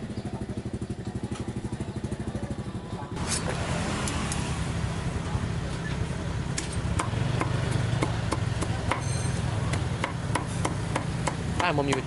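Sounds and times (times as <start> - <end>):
low engine-like hum: 0.0 - 11.5
cleaver chopping on wooden block: 6.6 - 9.1, 9.7 - 12.0.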